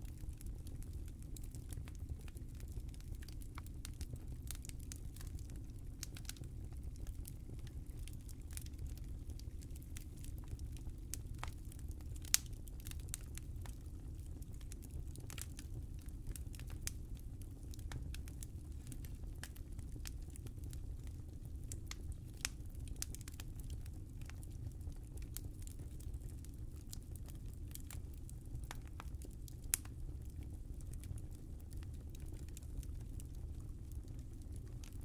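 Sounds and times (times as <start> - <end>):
fire crackling and popping: 0.0 - 35.0
low fire rumble: 0.0 - 35.0.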